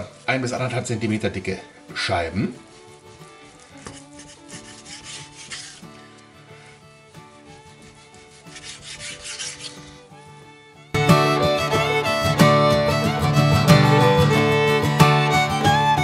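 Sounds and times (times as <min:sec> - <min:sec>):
faint background music: 0:00.0 - 0:11.3
knife rubbing on wooden board: 0:02.6 - 0:10.2
knife sawing through raw meat: 0:03.6 - 0:06.7, 0:07.3 - 0:10.1.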